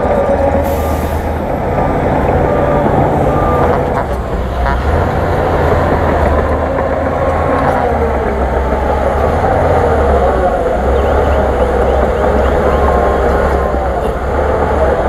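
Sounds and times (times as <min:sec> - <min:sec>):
heavy diesel engines under load: 0:00.0 - 0:15.0
backup alarm beeps: 0:00.7 - 0:06.3.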